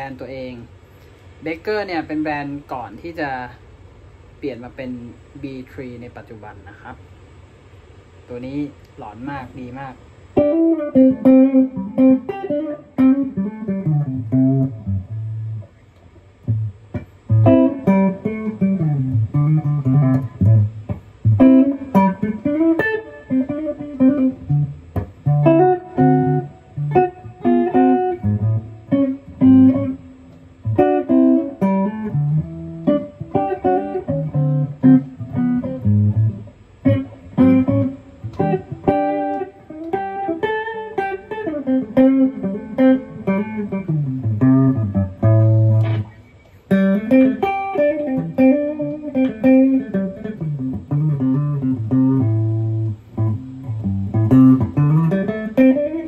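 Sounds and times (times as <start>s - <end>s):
electric guitar playing: 10.3s - 56.0s.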